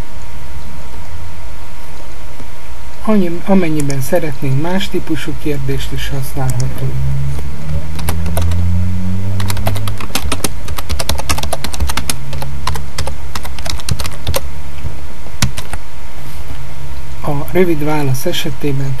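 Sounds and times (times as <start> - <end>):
steady low hum: 0.0 - 19.0
keyboard key clicks: 9.4 - 14.4.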